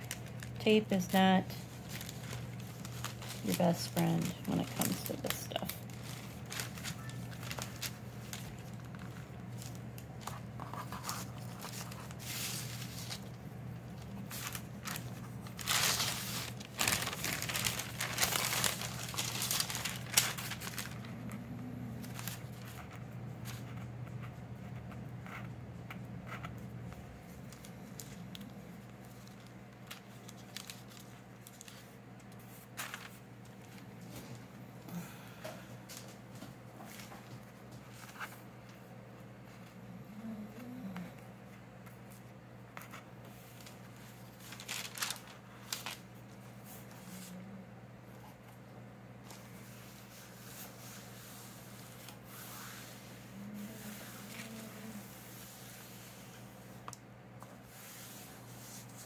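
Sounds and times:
paper pages rustling: 0.0s - 25.4s, 27.3s - 34.4s, 35.9s - 38.5s, 42.8s - 47.4s
steady low hum: 0.0s - 59.0s.

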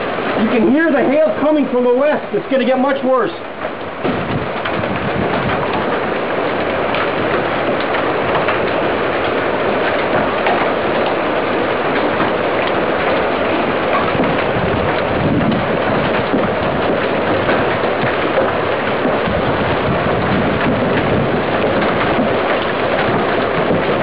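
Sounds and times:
heavy hail pelting down: 0.0s - 24.0s.

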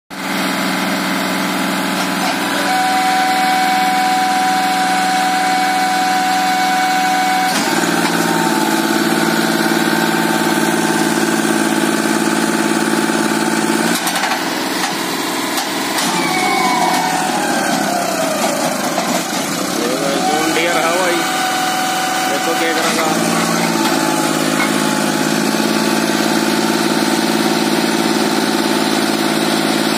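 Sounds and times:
tractor diesel engine under load: 0.1s - 29.9s.

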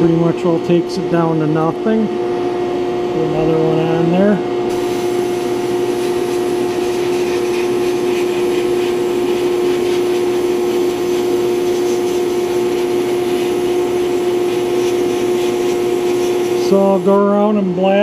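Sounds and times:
machine hum: 0.0s - 18.0s
air and glass beads hissing: 4.7s - 17.2s.

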